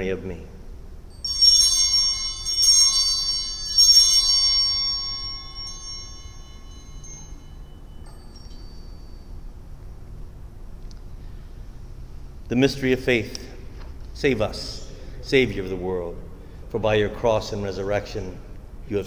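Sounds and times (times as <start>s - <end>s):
altar bells ringing: 1.0s - 11.4s.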